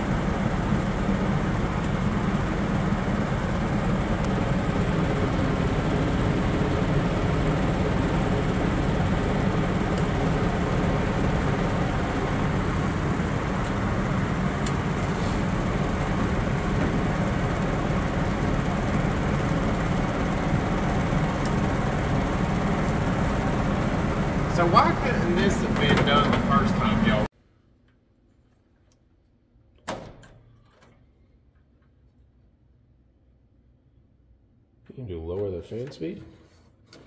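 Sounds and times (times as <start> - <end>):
furnace blower motor humming: 0.0 - 27.3.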